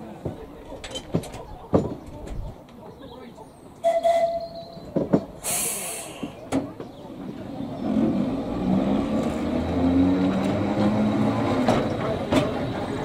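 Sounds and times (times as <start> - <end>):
tram motor humming: 3.8 - 13.0.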